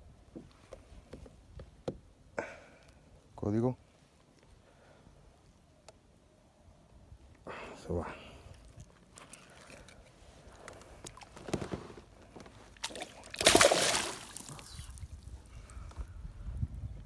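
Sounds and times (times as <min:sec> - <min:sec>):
fish splashing in water: 0:12.8 - 0:14.7.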